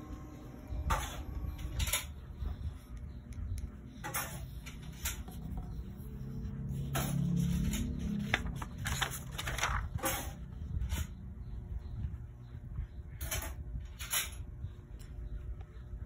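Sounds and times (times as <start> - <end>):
low steady rumble: 0.0 - 16.0
paper rustling and crinkling: 4.1 - 11.1.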